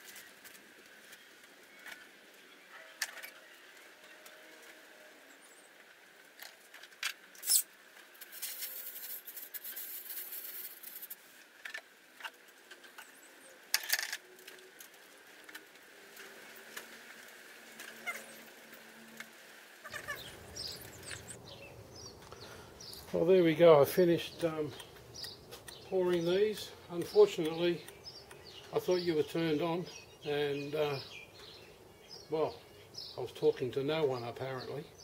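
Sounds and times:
hissing scrape: 7.4s - 11.3s.

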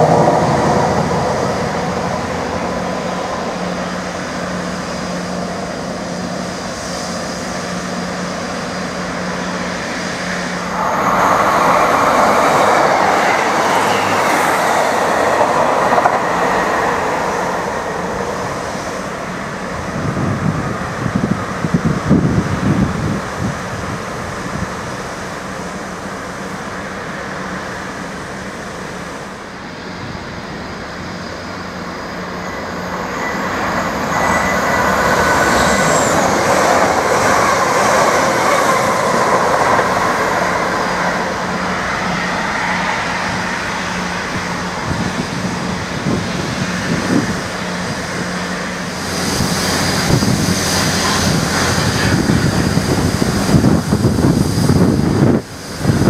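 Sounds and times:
train wheels rushing on rails: 0.0s - 56.0s
faint high squealing: 32.3s - 37.0s.

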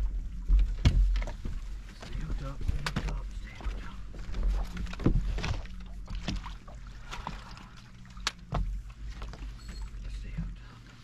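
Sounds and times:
steady low hum: 0.0s - 11.0s
clicks and knocks from boat gear: 0.4s - 7.3s, 8.1s - 10.0s.

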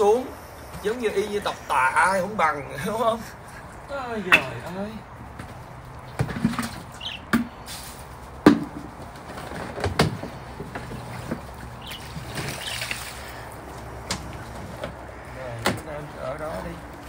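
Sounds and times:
water pouring onto concrete: 11.0s - 14.5s.

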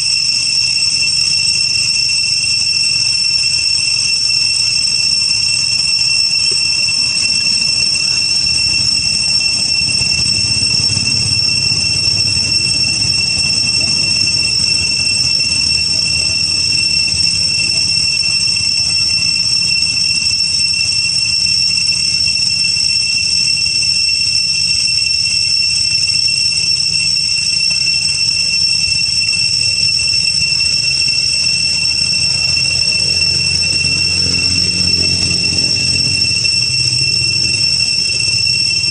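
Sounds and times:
cicadas droning: 0.0s - 38.9s
low background rumble: 6.4s - 20.7s.

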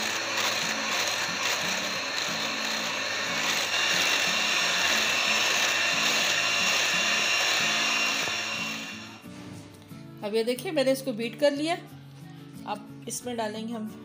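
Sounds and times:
electric hand mixer whining: 0.0s - 9.3s.

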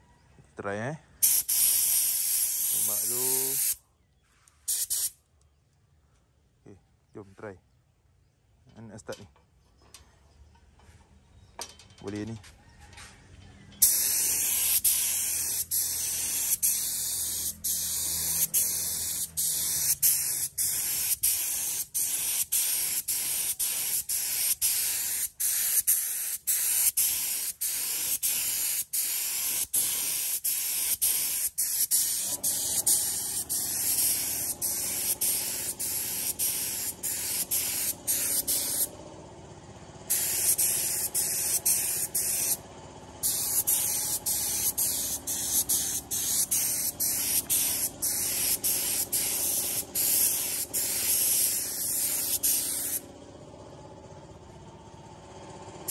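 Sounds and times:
paint spray gun hissing: 1.2s - 3.8s, 4.7s - 5.2s, 13.8s - 38.9s, 40.1s - 42.6s, 43.2s - 53.0s.

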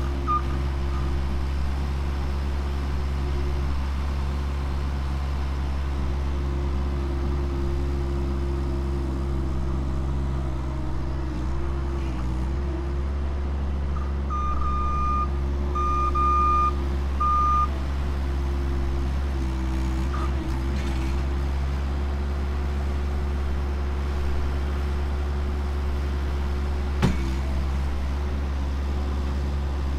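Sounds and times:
loader engine running: 0.0s - 29.9s
backup alarm beeps: 14.3s - 17.7s.

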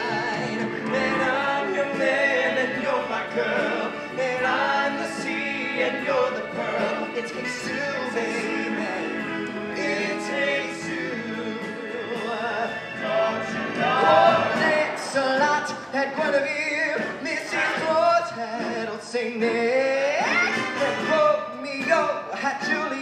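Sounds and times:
man singing into microphone: 0.0s - 12.8s, 14.0s - 23.0s
band accompaniment: 0.0s - 23.0s
male backing vocals: 0.0s - 23.0s.

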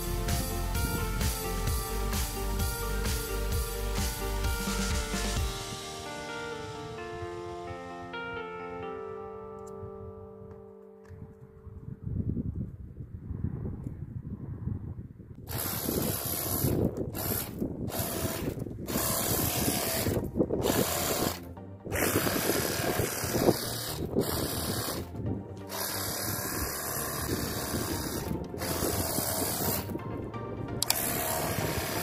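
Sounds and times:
pressure washer pump motor running: 15.5s - 25.1s, 25.7s - 29.9s, 30.8s - 32.0s.

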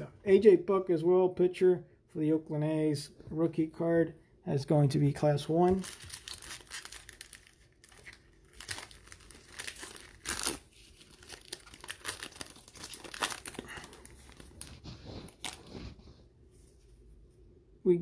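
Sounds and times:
card pack wrapper crinkling and tearing: 5.7s - 15.7s.

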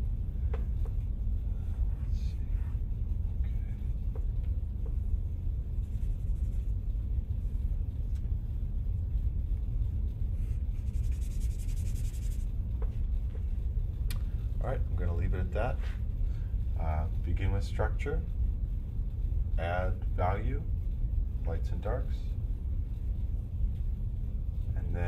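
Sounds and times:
low background rumble: 0.0s - 25.0s
charcoal scratching on paper: 5.8s - 6.8s, 10.8s - 12.5s.

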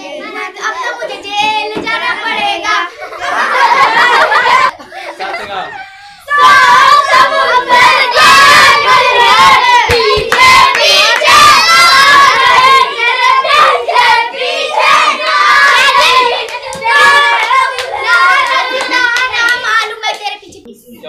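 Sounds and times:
boys singing together loudly: 6.3s - 20.0s
hand clapping: 9.8s - 11.4s, 16.4s - 20.4s.

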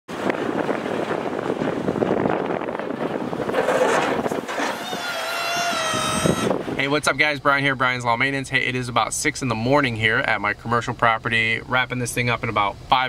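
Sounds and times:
snowplow blade pushing snow: 0.1s - 6.8s
truck engine: 0.1s - 7.8s
high whine: 4.2s - 13.0s.

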